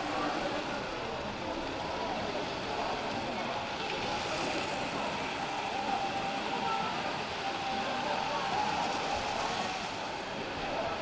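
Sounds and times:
model trains running on track: 0:00.0 - 0:11.0.

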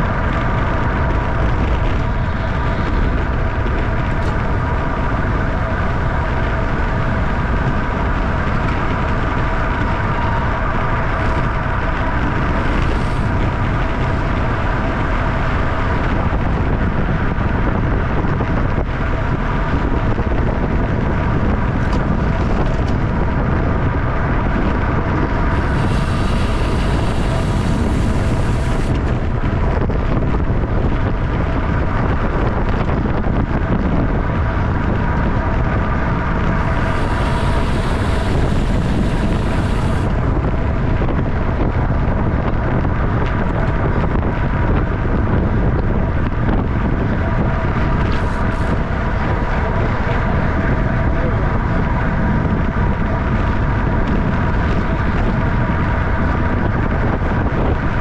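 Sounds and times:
bike rolling whine: 0:00.0 - 0:58.0
wind buffeting microphone: 0:00.0 - 0:58.0
high hiss: 0:36.8 - 0:40.0.

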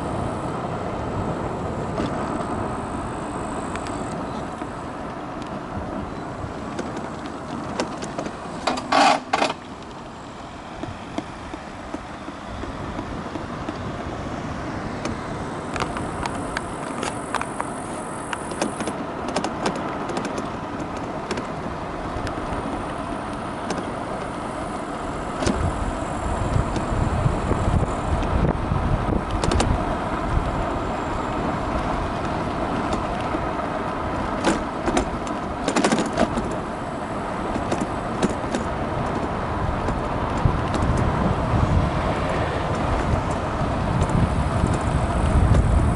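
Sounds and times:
highway traffic: 0:00.0 - 0:45.9
tyre and wind noise: 0:00.0 - 0:45.9
scooter parts rattling: 0:03.8 - 0:10.0, 0:15.0 - 0:24.5, 0:28.0 - 0:36.8, 0:37.4 - 0:45.9
wind buffeting microphone: 0:09.7 - 0:45.9.

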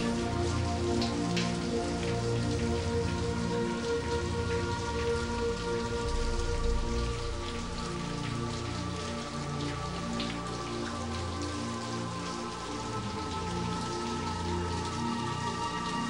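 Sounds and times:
slow background music: 0:00.0 - 0:16.0
steady rain: 0:00.0 - 0:16.0.

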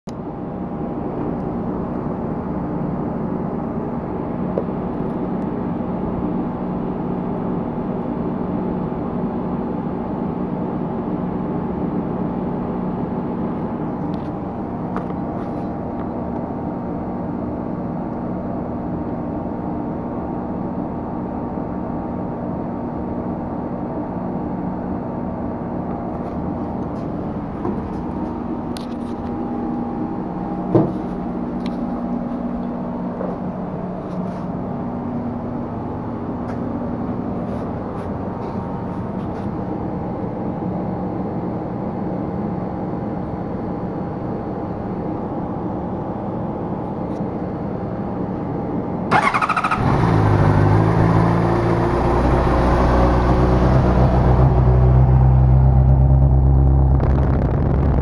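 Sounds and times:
motorcycle engine idling: 0:49.1 - 0:50.0.

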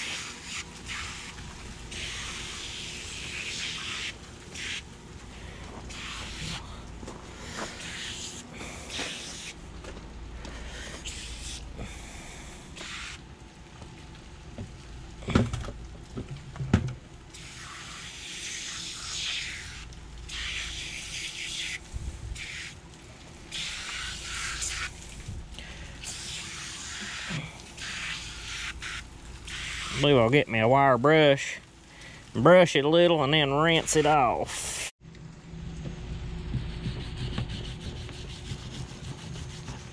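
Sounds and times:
aerosol can spraying: 0:00.0 - 0:04.9, 0:05.9 - 0:06.6, 0:07.6 - 0:09.6, 0:12.8 - 0:13.2, 0:17.4 - 0:21.8, 0:23.5 - 0:24.9, 0:26.1 - 0:30.1.

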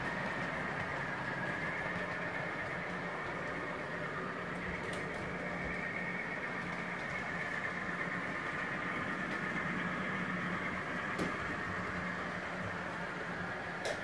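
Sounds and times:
mechanical hum: 0:00.0 - 0:14.0.

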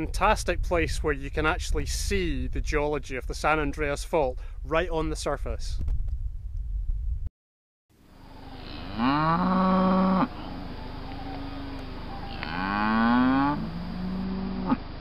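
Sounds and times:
cow mooing: 0:08.2 - 0:14.8.

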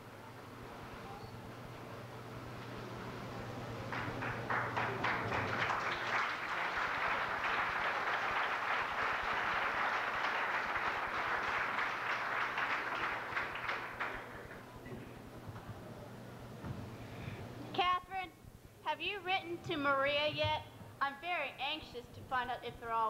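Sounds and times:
audience applauding: 0:03.8 - 0:14.8.

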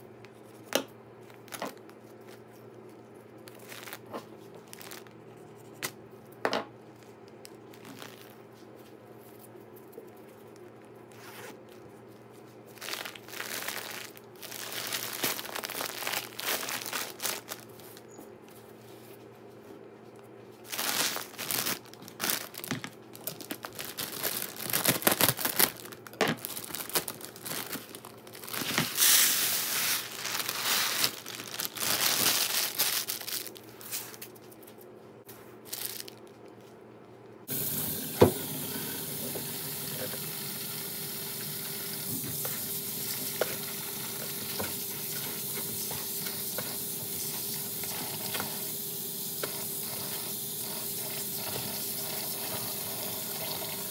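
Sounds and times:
plastic bag crinkling: 0:01.3 - 0:05.2, 0:07.0 - 0:18.2, 0:20.6 - 0:36.8
tap water running into tub: 0:37.5 - 0:53.9.

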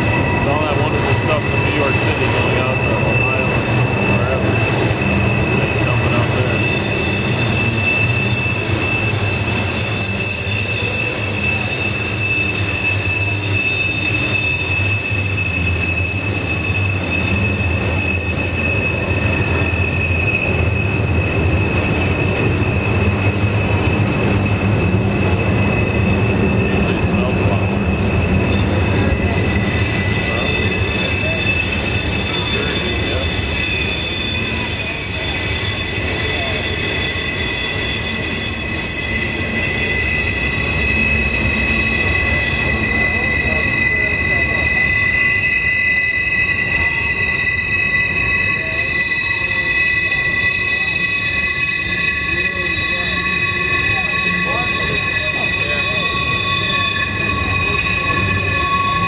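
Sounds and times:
freight cars rumbling: 0:00.0 - 0:45.8
wheel flanges squealing on rail: 0:00.0 - 0:59.0.

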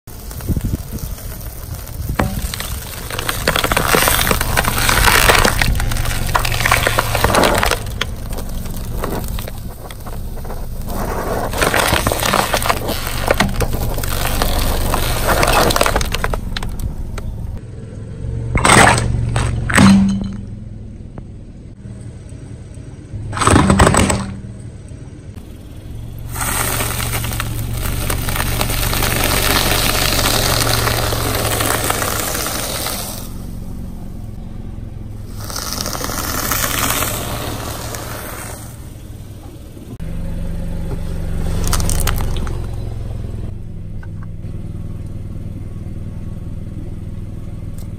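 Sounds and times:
low engine hum: 0:00.0 - 0:47.9
firework hissing and crackling: 0:00.1 - 0:05.0, 0:26.3 - 0:33.6, 0:35.2 - 0:39.0.

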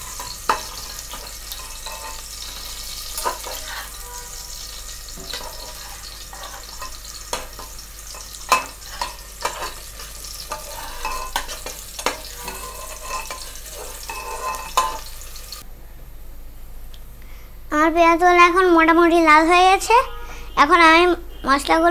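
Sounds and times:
onions sizzling in hot oil: 0:00.0 - 0:15.6
spoon scraping and knocking pot: 0:00.0 - 0:15.6.

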